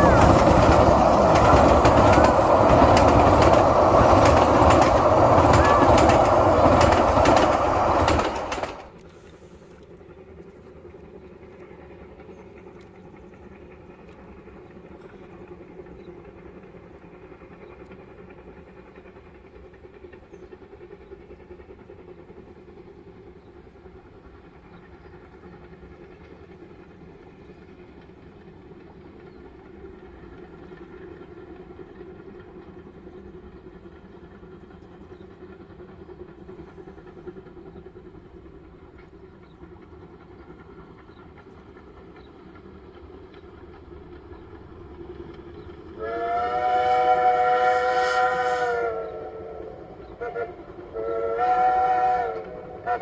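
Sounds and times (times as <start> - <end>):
distant steam locomotive: 0.0 - 53.0
steam whistle chord: 46.0 - 53.0.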